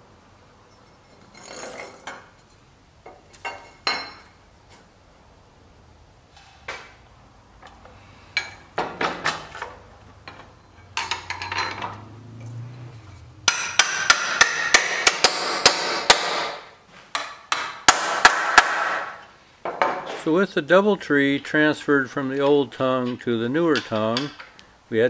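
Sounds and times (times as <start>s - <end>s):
iron parts clinking: 0.7s - 4.4s, 7.6s - 15.1s
hammer striking metal: 13.4s - 19.2s.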